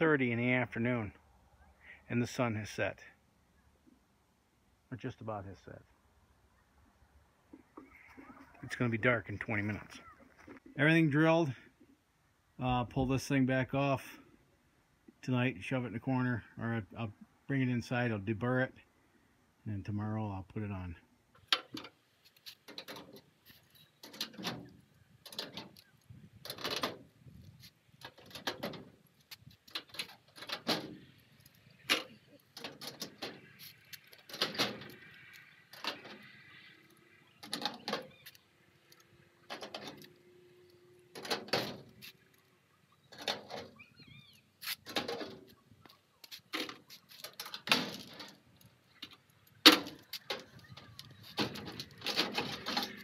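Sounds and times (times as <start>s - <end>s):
metallic clicks and knocks: 21.4s - 40.2s, 41.1s - 42.4s, 44.6s - 53.0s.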